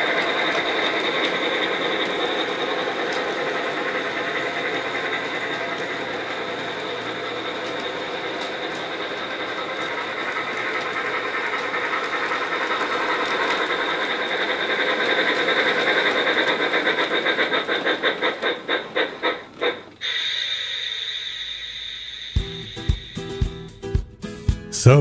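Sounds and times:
model train mechanical whir: 0.0s - 23.6s
rhythmic beat slowing: 22.0s - 25.0s
music: 22.4s - 25.0s.

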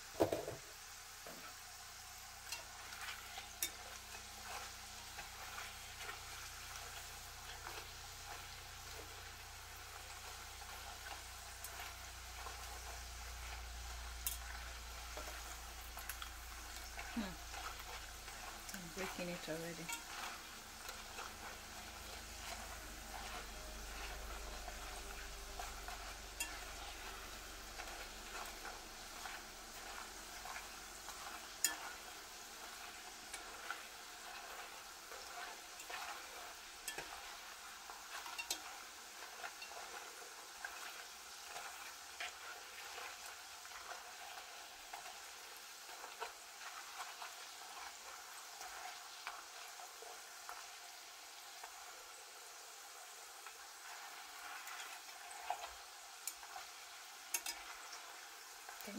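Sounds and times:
food sizzling in hot oil: 0.0s - 58.9s
metal fork clicking on pot: 31.6s - 31.9s, 36.9s - 37.2s, 38.2s - 38.7s, 57.3s - 57.6s.

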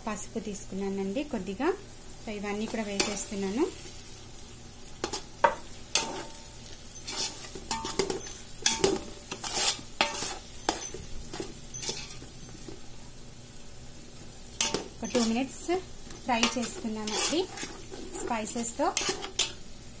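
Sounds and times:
food sizzling: 0.0s - 20.0s
spoon scraping metal pot: 7.0s - 12.3s, 14.6s - 15.5s, 16.4s - 19.5s.

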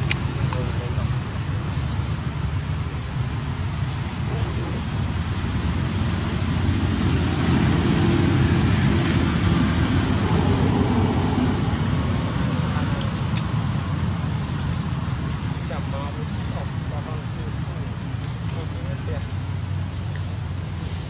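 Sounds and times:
steady low rumbling noise: 0.0s - 21.0s.

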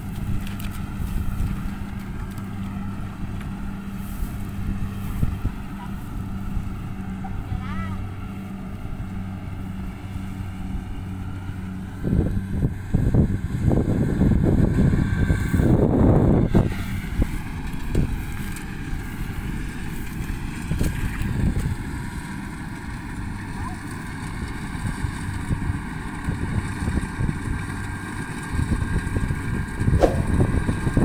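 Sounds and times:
wind buffeting microphone: 0.0s - 7.6s, 8.8s - 22.0s, 24.8s - 31.0s
harvester engine droning: 0.0s - 31.0s.

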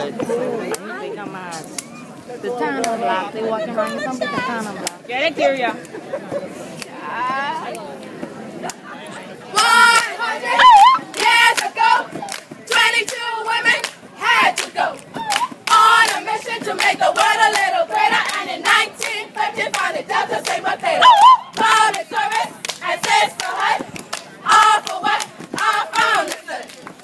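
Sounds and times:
group chanting and shouting: 8.6s - 27.0s
rhythmic hand clapping: 9.9s - 27.0s
crowd whooping and cheering: 10.5s - 11.1s, 21.0s - 21.6s.

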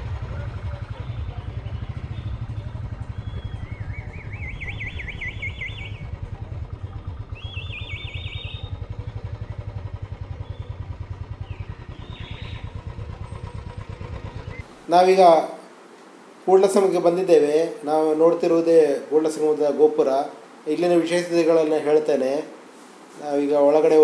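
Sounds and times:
motorcycle engine running: 0.0s - 14.8s
high warbling whistle: 1.0s - 10.8s.

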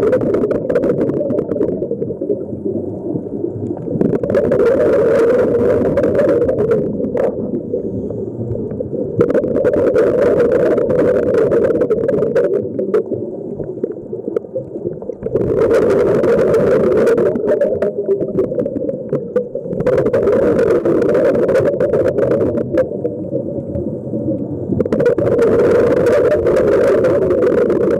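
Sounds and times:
underwater exhaled bubbles rushing: 0.0s - 27.9s
diver inhaling through regulator: 7.6s - 8.6s.

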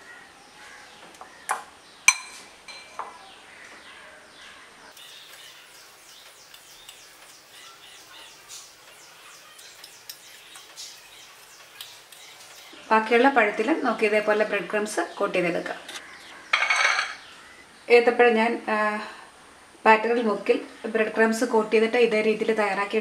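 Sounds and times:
cutlery clinking on ceramic plate: 2.1s - 3.1s, 16.5s - 17.2s
faint high chirping: 2.8s - 12.9s.

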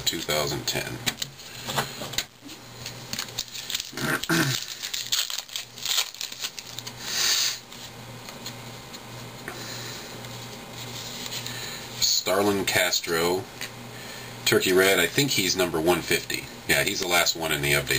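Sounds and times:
cards being handled: 1.1s - 7.0s, 10.2s - 11.6s
foil wrapper crinkling and tearing: 2.8s - 7.8s.

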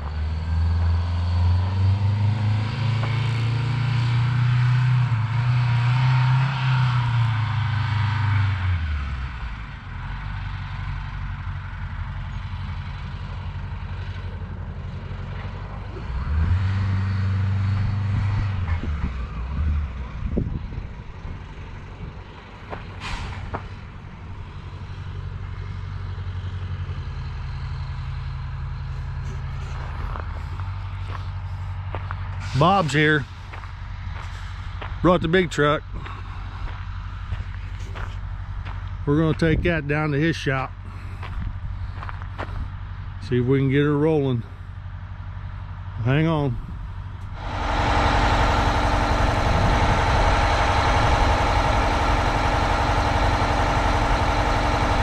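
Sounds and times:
truck engine running: 0.0s - 55.0s
short sharp hiss: 23.0s - 23.6s.

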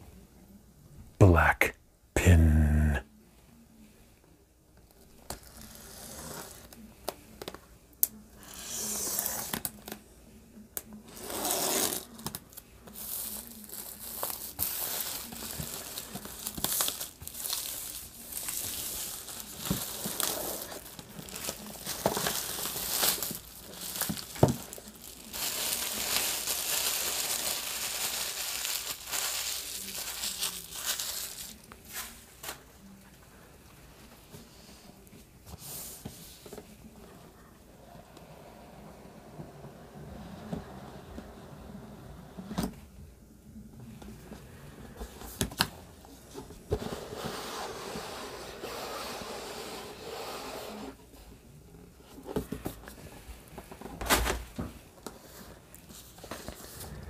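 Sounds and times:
plastic wrap crinkling and tearing: 11.7s - 32.6s.

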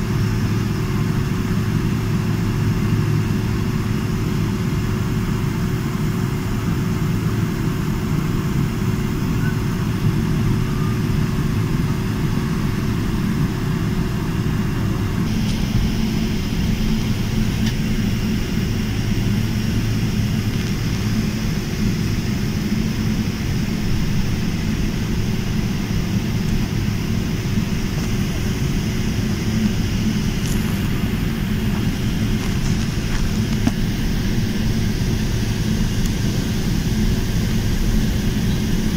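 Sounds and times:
jet engines rumbling: 0.0s - 38.9s
thin steady whine: 0.0s - 38.9s
high hiss: 15.2s - 38.9s.

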